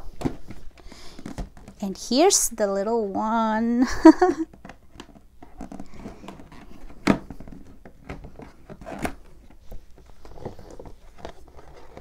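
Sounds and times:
cardboard rustling and scraping: 4.8 - 12.0.

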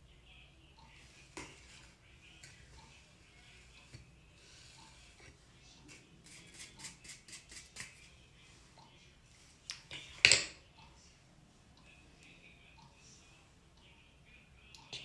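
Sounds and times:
light scratchy brush strokes: 0.8 - 9.6.

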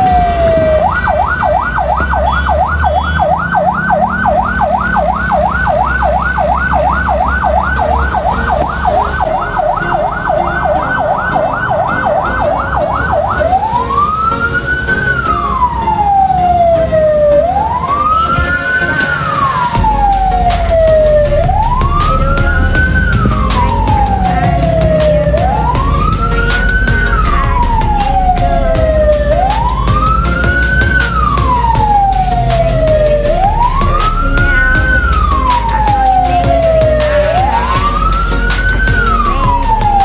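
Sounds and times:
siren wailing: 0.0 - 40.0
low rumble: 19.5 - 40.0.

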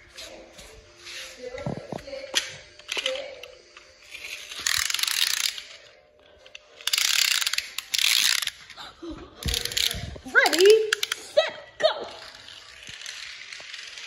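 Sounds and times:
pull-back toy car ratcheting whirr: 2.8 - 8.8, 9.4 - 11.4, 12.1 - 14.0.

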